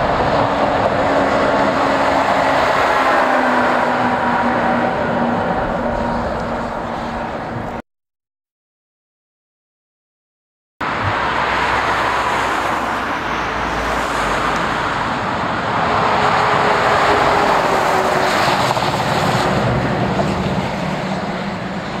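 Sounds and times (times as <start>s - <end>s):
truck diesel engine passing: 0.0s - 7.8s, 10.8s - 22.0s.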